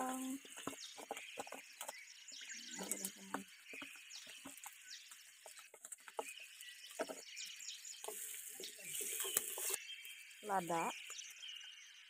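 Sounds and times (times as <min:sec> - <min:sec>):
seeds frying in hot oil: 0:03.0 - 0:11.6.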